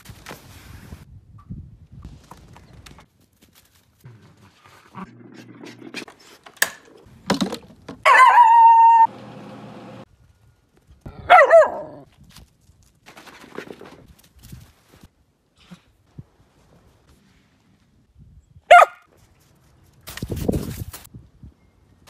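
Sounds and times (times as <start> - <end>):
dog barking: 8.1 - 9.1, 11.2 - 12.0, 18.7 - 19.1.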